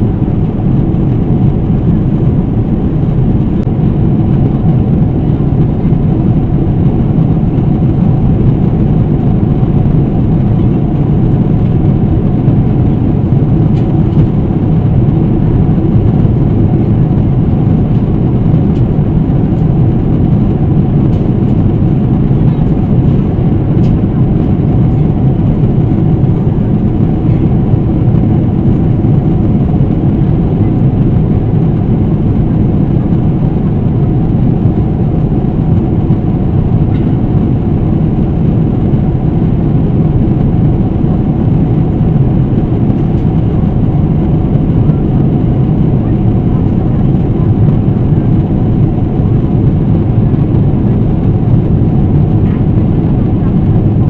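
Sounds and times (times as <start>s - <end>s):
airplane cabin roar: 0.0s - 54.0s
faint steady hum: 0.0s - 54.0s.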